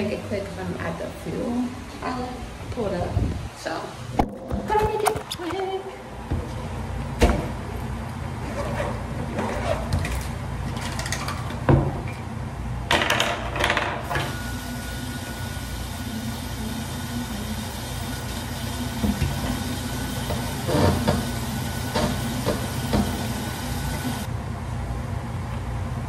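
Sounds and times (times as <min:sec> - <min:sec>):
steady low hum: 0:14.1 - 0:26.0.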